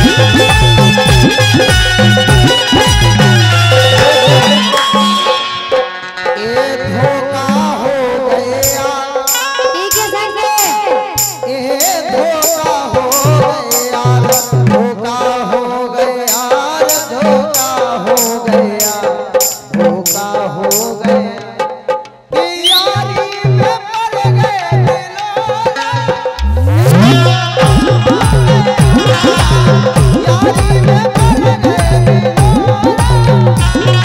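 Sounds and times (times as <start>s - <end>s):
hand drum: 0.0s - 5.9s, 7.0s - 34.0s
high sharp percussion strokes: 0.0s - 6.4s, 8.6s - 15.0s, 16.1s - 21.8s, 25.8s - 34.0s
harmonium and keyboard melody: 0.0s - 34.0s.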